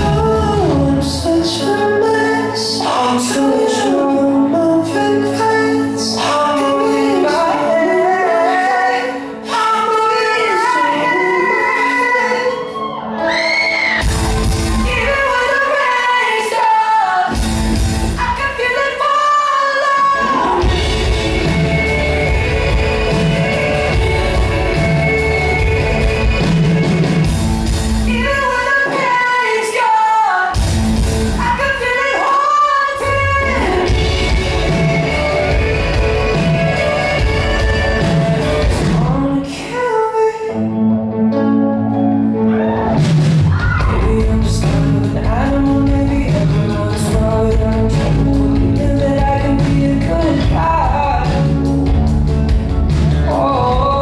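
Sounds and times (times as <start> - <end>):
man singing: 0.0 - 12.8, 18.2 - 27.3, 31.4 - 40.9, 43.8 - 52.0, 53.1 - 54.0
live pop rock band: 0.0 - 54.0.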